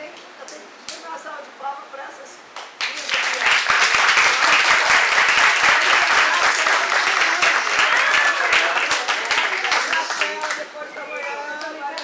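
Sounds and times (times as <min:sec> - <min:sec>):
audience applause: 0:02.8 - 0:12.0.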